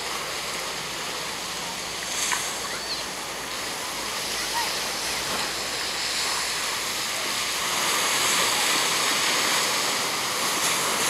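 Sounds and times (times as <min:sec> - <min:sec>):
ocean surf breaking on beach: 0:00.0 - 0:11.0.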